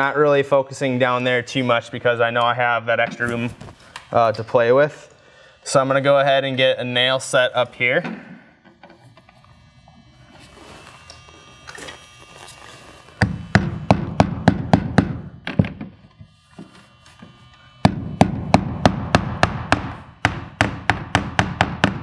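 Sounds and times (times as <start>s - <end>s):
hammer driving nails: 13.2s - 16.0s, 17.8s - 22.0s.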